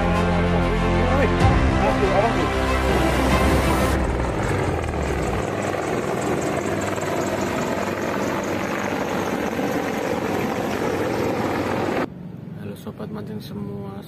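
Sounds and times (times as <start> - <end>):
helicopters flying overhead: 0.0 - 12.1.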